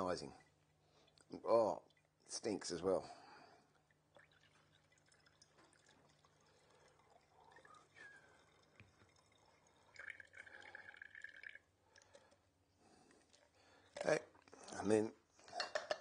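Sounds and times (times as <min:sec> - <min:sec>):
liquid trickling through filter: 0:03.2 - 0:12.5.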